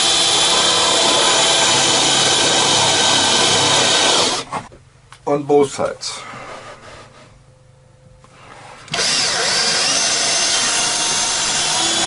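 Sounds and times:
power drill whining: 0.0 - 4.5, 8.9 - 12.0.

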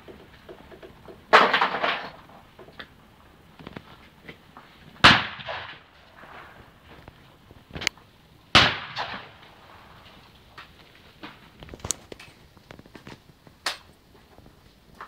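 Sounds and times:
shotgun shots with echo: 5.0 - 6.5, 8.5 - 9.5.

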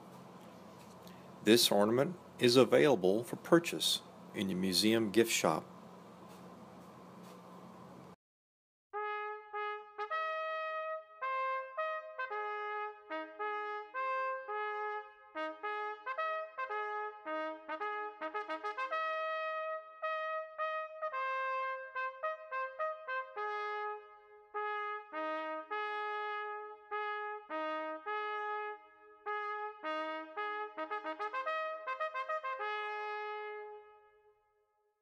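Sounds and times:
trumpet playing a melody: 9.0 - 34.4.

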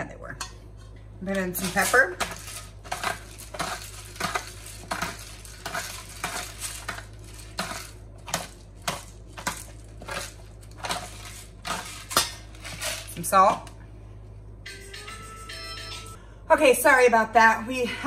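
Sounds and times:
pepper mill grinding: 1.4 - 13.7.

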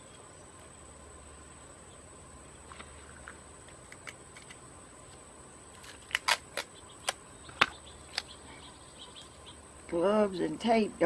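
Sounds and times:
sticky tape crackling and peeling: 5.7 - 7.2
sharp clicks: 5.8 - 8.4.

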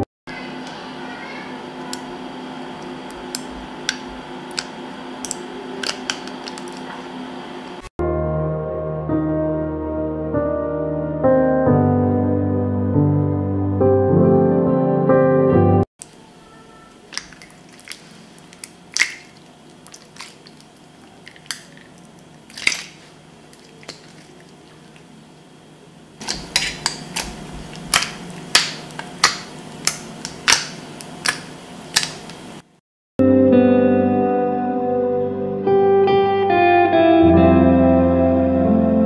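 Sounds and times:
slime squished by hand: 17.1 - 25.1, 26.2 - 32.4
background music: 33.2 - 39.0.

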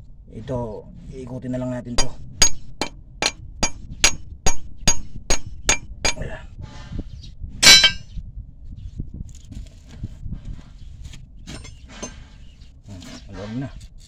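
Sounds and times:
hammer striking metal bolt: 2.0 - 6.2, 7.6 - 8.0.

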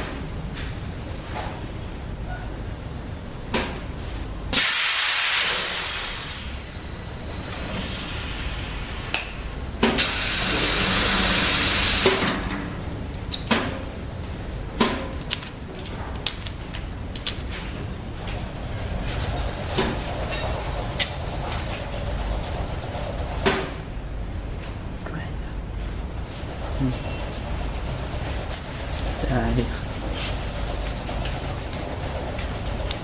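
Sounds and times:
machine hum: 0.0 - 33.0
machine hissing: 4.5 - 12.9.

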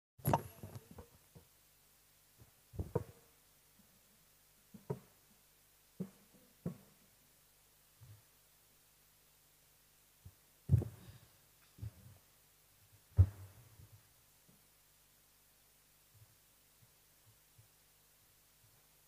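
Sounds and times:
faint steady hum: 0.2 - 19.0
microphone thumps and knocks: 2.7 - 3.2, 10.7 - 11.0, 13.1 - 13.6.

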